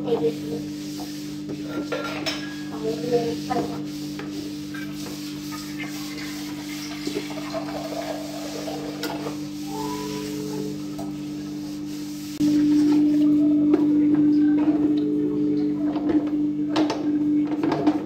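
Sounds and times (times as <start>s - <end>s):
tissue paper wiping a hot plate: 0.0s - 12.9s
steady low hum: 0.0s - 18.0s.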